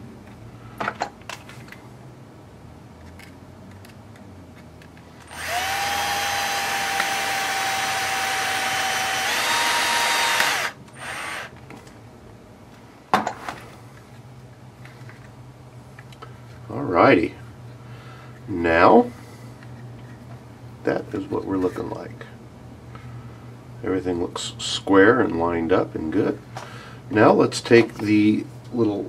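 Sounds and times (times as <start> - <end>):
electric screwdriver whine: 5.3 - 11.5.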